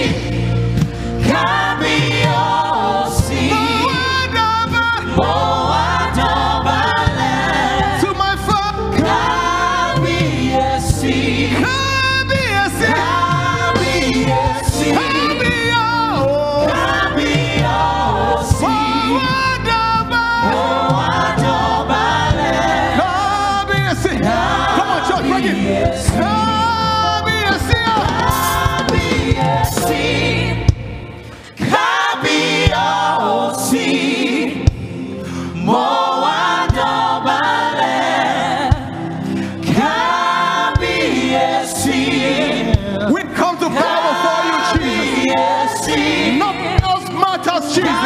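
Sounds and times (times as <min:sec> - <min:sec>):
women singing backing vocals: 0:00.0 - 0:11.9, 0:12.6 - 0:34.8, 0:35.6 - 0:47.0
instrumental accompaniment with bass: 0:00.0 - 0:48.0
man singing lead vocals: 0:18.6 - 0:20.6.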